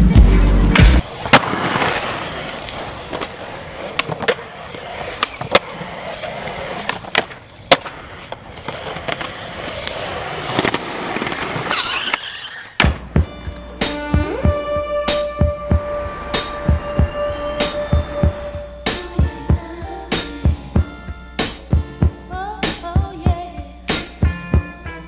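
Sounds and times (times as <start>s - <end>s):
music: 0.0s - 1.0s, 12.9s - 25.0s
skateboard wheels rolling on concrete: 0.0s - 25.0s
skateboard clacking and landing: 0.8s - 15.8s.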